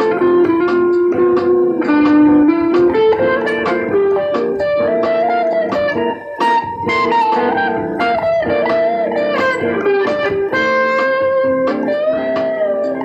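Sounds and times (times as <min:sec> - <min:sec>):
electric guitar lead line: 0:00.0 - 0:13.0.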